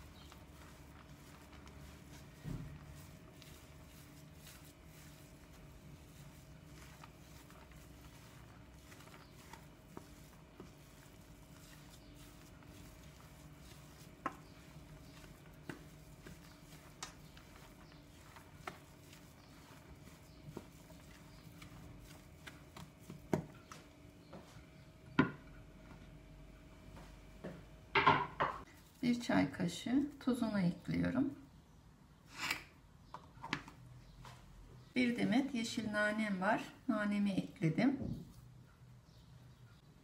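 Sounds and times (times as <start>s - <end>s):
spoon scraping mixture: 0.0s - 24.6s.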